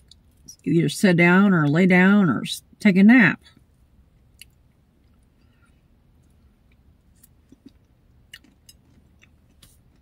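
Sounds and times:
chewing soft food: 4.2 - 10.0.

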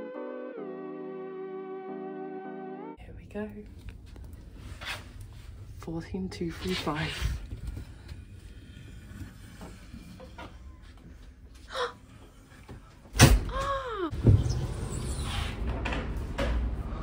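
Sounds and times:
door hinge squeal: 14.3 - 15.7.

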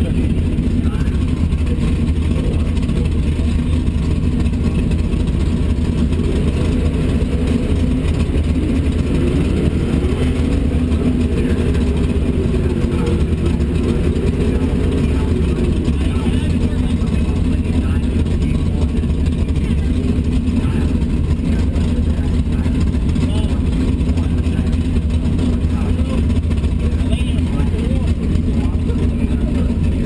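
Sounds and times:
car engine idling: 0.0 - 30.0.

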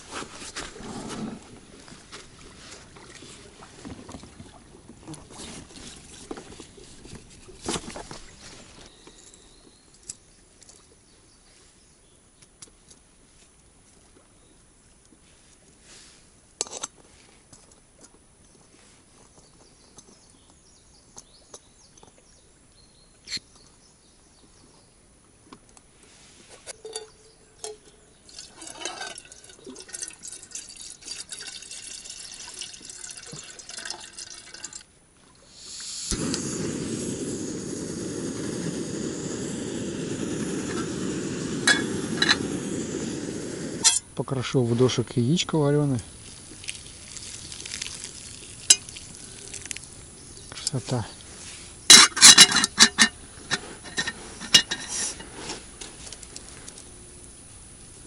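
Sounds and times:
water pouring into metal pot: 27.6 - 34.8, 46.2 - 49.9
gas stove flame hissing: 35.6 - 44.0
metal clicks of camping stove: 41.5 - 42.9, 43.8 - 44.1, 51.9 - 56.9.

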